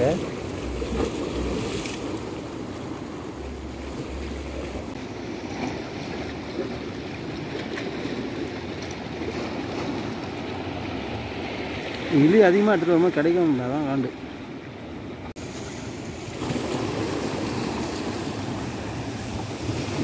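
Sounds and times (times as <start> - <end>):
sea waves washing against rocks: 0.0 - 20.0.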